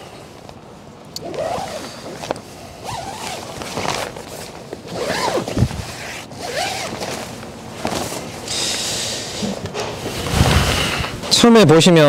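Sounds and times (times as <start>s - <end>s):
zipper being pulled open: 1.2s - 8.2s.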